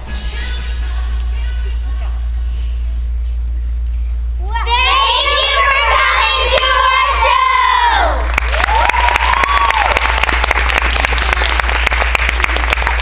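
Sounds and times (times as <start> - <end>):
children cheering: 5.4 - 10.3
audience applauding: 8.2 - 13.0.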